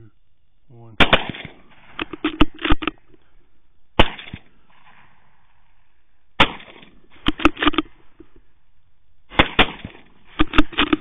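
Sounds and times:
rifle shots: 0:01.0 - 0:02.9, 0:04.0 - 0:05.1, 0:06.4 - 0:08.0, 0:09.3 - 0:11.0.

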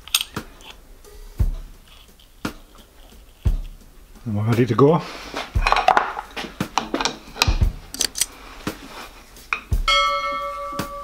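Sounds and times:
ringing notification chime: 0:09.9 - 0:11.0.

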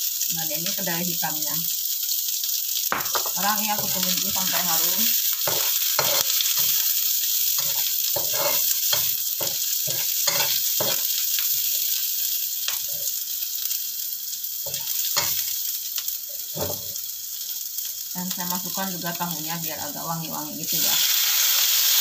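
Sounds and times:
vegetables sizzling in oil: 0:00.0 - 0:22.0
spatula scraping a pan: 0:03.6 - 0:06.9, 0:07.5 - 0:12.0, 0:16.4 - 0:17.0.

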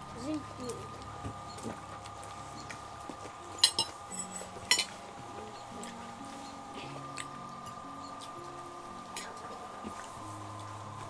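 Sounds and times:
faint background tones: 0:00.0 - 0:11.0
tableware clinking: 0:03.5 - 0:06.0.

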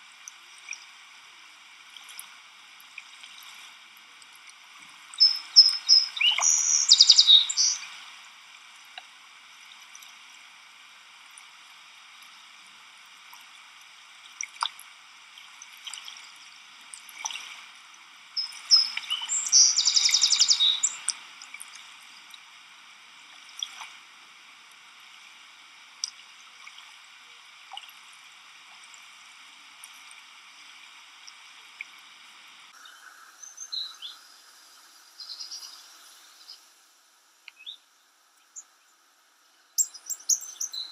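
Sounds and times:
birds calling: 0:05.2 - 0:07.8, 0:18.4 - 0:21.0, 0:39.8 - 0:40.9
insect chorus: 0:05.2 - 0:08.0, 0:18.4 - 0:21.0, 0:32.8 - 0:36.9
rapid bird trill: 0:18.4 - 0:21.0, 0:39.8 - 0:40.9.

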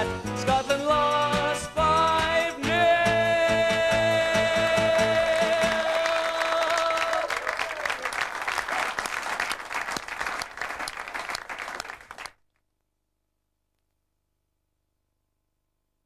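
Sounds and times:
audience applause: 0:05.2 - 0:12.4.

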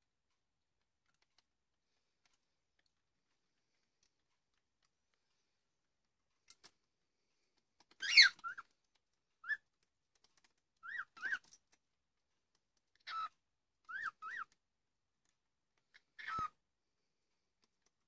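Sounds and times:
cockatiel short chirps: 0:08.0 - 0:08.6, 0:16.2 - 0:16.5
cockatiel whistle-like call: 0:16.2 - 0:16.5.

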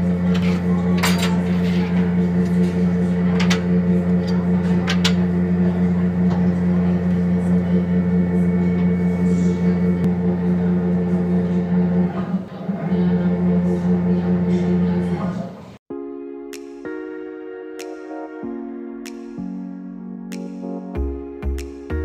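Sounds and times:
loud machinery hum: 0:00.0 - 0:15.8.

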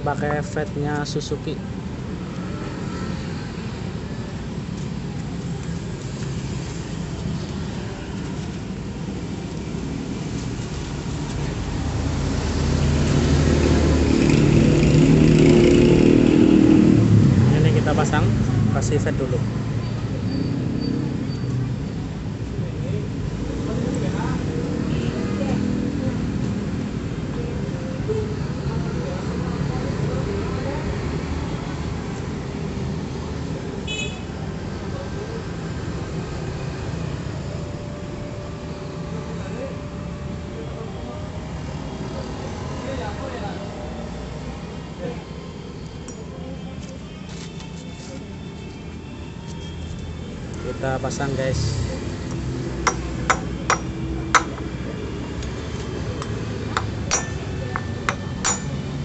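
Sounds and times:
road traffic hum: 0:00.0 - 0:59.0
hammer tapping metal socket: 0:56.2 - 0:58.8.

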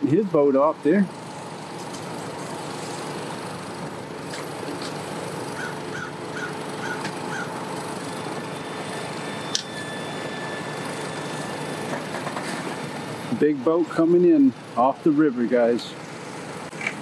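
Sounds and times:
outdoor background noise: 0:00.0 - 0:17.0
bird giving short calls: 0:05.5 - 0:07.6.

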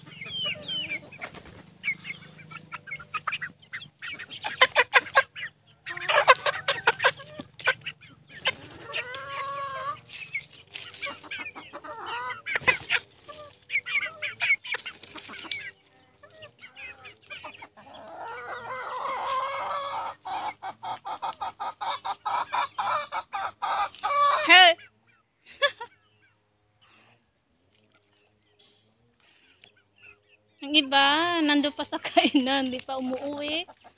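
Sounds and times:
chickens squawking: 0:00.0 - 0:27.1, 0:27.8 - 0:33.9
chickens clucking: 0:00.0 - 0:33.9.

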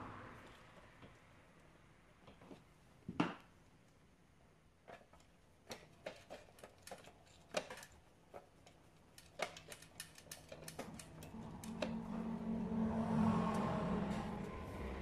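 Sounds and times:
clicks and taps of handled parts: 0:04.9 - 0:11.8.

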